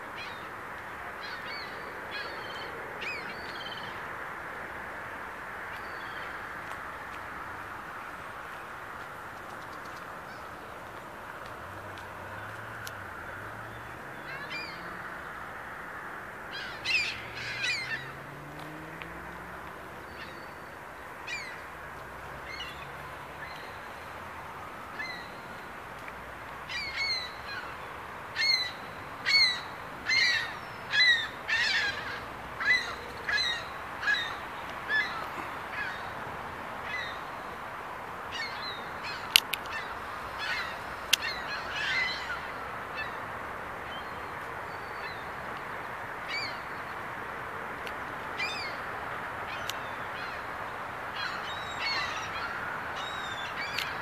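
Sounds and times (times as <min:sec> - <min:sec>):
steady background hiss: 0:00.0 - 0:54.0
birds calling harshly: 0:16.5 - 0:19.0, 0:20.0 - 0:21.7, 0:26.7 - 0:36.2, 0:38.3 - 0:43.2, 0:46.2 - 0:47.0, 0:48.3 - 0:54.0.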